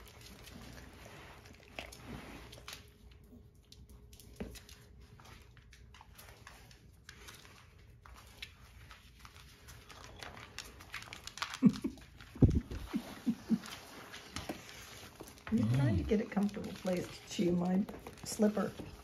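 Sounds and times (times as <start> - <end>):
dogs scuffing on wooden floor: 12.5 - 19.0.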